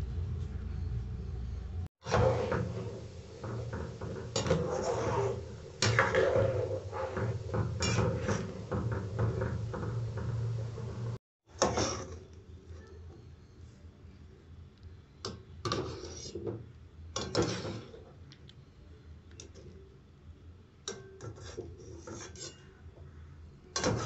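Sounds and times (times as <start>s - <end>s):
low steady hum: 0.0s - 11.2s
water boiling and bubbling: 2.0s - 11.2s.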